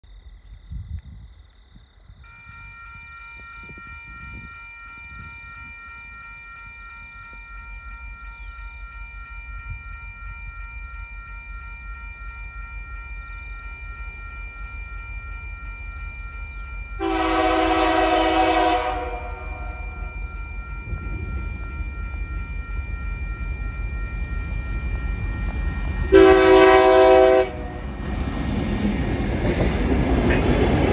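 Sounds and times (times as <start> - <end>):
level crossing warning bells: 2.2 - 30.9
diesel locomotive rumble: 14.9 - 30.9
locomotive horn blast: 17.0 - 20.0, 26.1 - 27.8.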